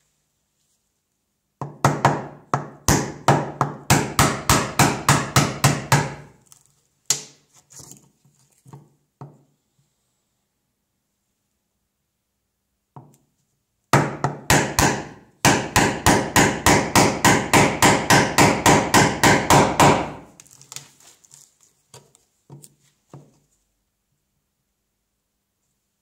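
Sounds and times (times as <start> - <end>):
mallet striking chisel: 1.6 - 6.2, 14.0 - 20.2.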